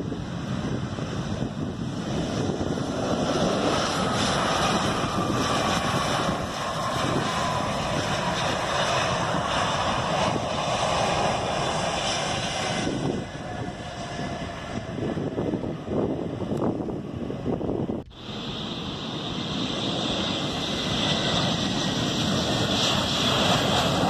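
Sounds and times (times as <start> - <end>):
jet engines in reverse thrust: 0.0 - 24.0
wind on microphone: 0.0 - 24.0
falling whine: 18.0 - 24.0.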